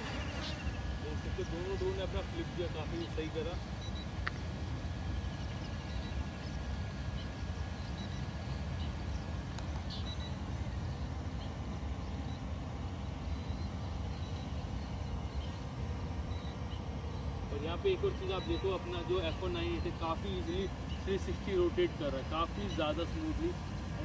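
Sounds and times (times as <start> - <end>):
drone propeller buzz: 0.0 - 24.0.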